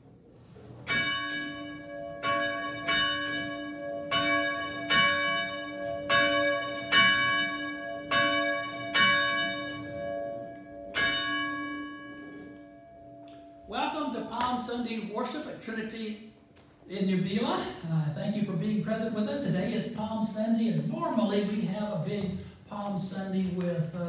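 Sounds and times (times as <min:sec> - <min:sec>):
church bell ringing: 0:00.8 - 0:14.0.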